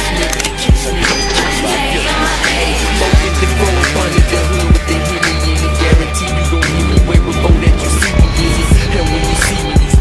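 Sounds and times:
hip hop backing track: 0.0 - 10.0
heavy bass line: 0.8 - 10.0
deep kick drums: 6.7 - 10.0.

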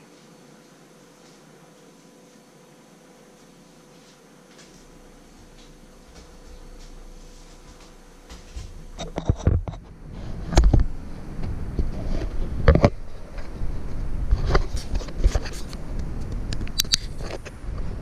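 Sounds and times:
low rumbling bumps on microphone: 8.3 - 16.5
camera handling knocks and scrapes: 9.0 - 9.8.

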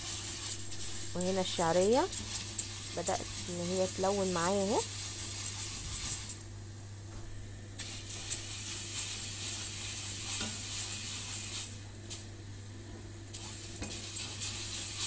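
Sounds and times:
spatula scraping pot: 0.0 - 6.4, 8.2 - 11.8
noodles sizzling in oil: 0.0 - 7.1, 7.7 - 15.0.

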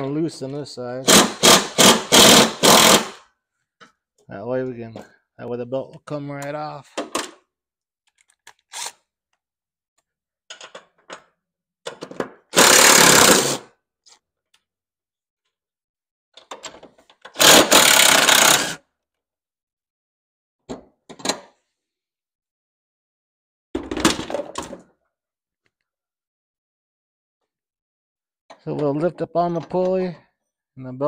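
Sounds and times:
impact driver loosening bolts: 1.1 - 3.2, 16.4 - 18.8.

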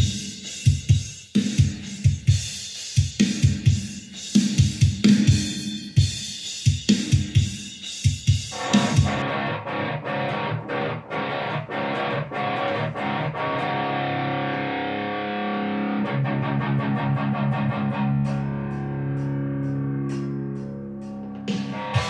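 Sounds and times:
distorted electric guitar riff: 8.5 - 22.0.

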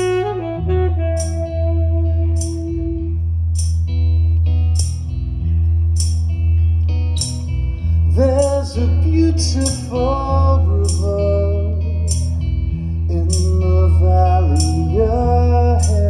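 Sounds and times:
saxophone melody: 0.0 - 4.5
steady bass: 0.0 - 16.0.

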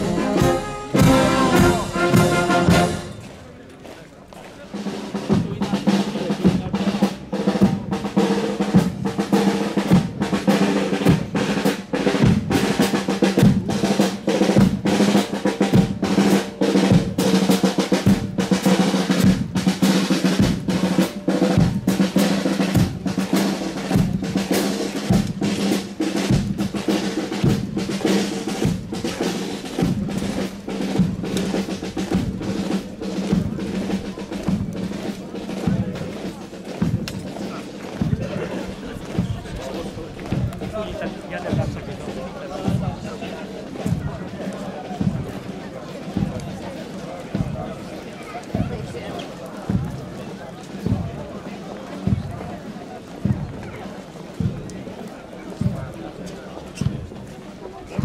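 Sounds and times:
snare and bass drum beating: 0.0 - 3.2, 4.7 - 46.5, 47.3 - 47.6
marching band playing: 0.0 - 58.0.

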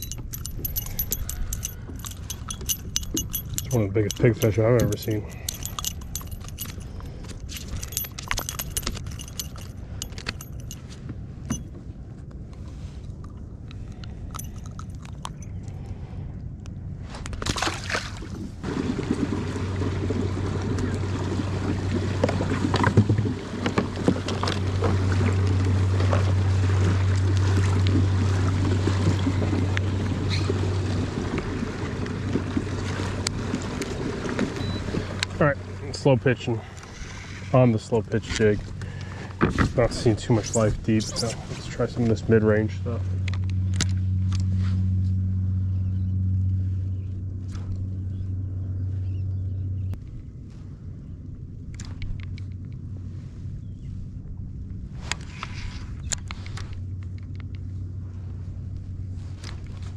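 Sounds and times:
metallic clinking of fishing hooks: 0.0 - 11.7, 13.7 - 15.9
steady low hum: 0.0 - 59.9
water rushing along hull: 17.4 - 43.4.

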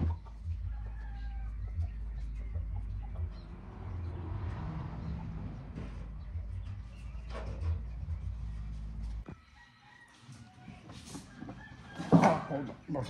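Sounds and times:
chickens clucking: 0.0 - 9.3
low steady rumble: 0.3 - 9.2.

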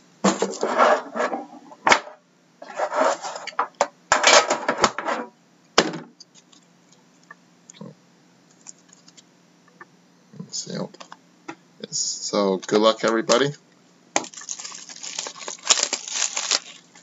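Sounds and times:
packaging rustling and scraping: 2.6 - 3.6, 14.2 - 17.0.

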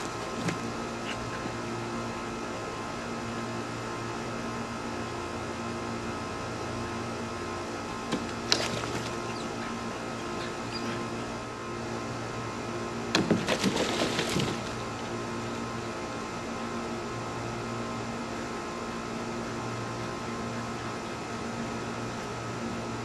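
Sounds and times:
machine hum: 0.0 - 23.0.

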